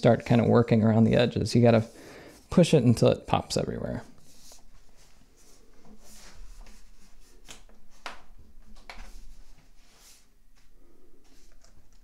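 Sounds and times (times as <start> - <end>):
hands rubbing on metal: 4.2 - 8.2.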